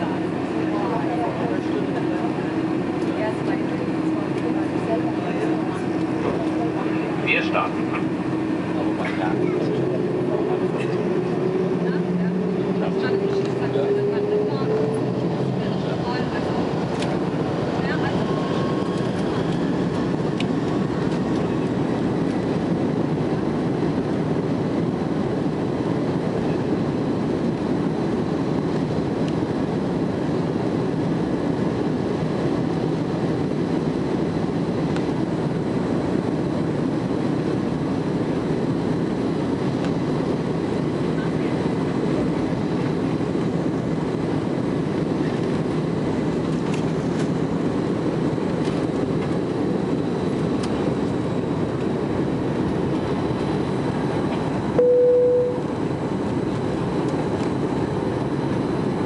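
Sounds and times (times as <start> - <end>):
low rumble of engines and wheels: 0.0 - 59.0
faint high whine: 54.7 - 55.9.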